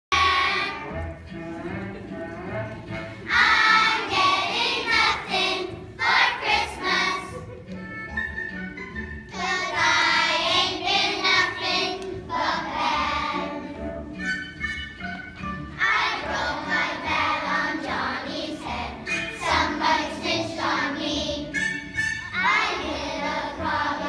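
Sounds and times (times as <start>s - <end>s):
musical accompaniment: 0.1s - 24.0s
children singing: 0.2s - 1.0s, 3.3s - 7.6s, 9.3s - 14.0s, 15.8s - 24.0s.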